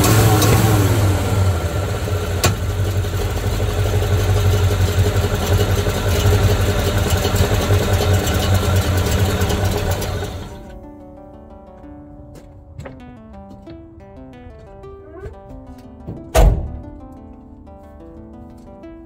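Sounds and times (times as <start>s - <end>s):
truck engine running: 0.0s - 10.8s.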